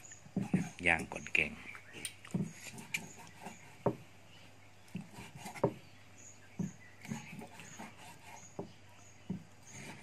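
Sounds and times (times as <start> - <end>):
knife chopping on wooden block: 0.4 - 0.8, 2.3 - 4.0, 4.9 - 5.8, 6.6 - 10.0.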